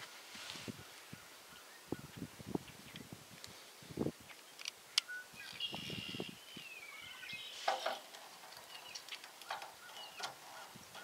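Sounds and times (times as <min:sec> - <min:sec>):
scratchy rustle: 0:00.0 - 0:00.8
bird calling: 0:04.6 - 0:11.0.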